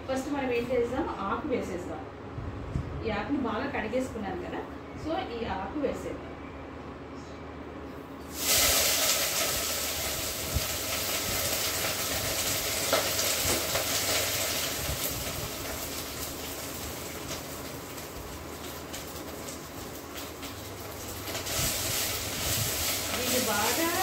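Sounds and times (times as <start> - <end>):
leaves sizzling in hot oil: 8.3 - 24.0.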